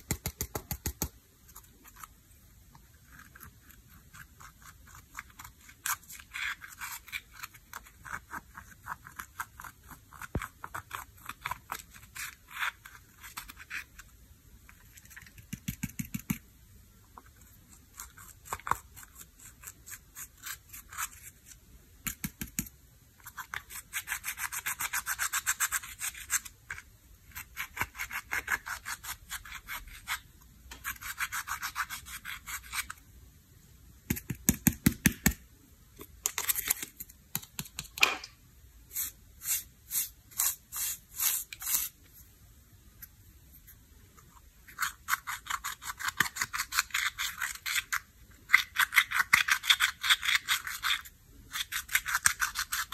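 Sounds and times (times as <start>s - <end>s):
metal tool scraping eyeshadow: 44.7s - 52.9s.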